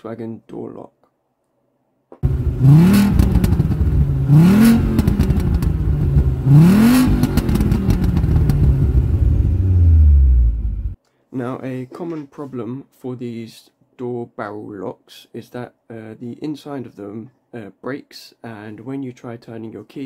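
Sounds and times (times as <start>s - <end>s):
car engine revving: 2.2s - 11.0s.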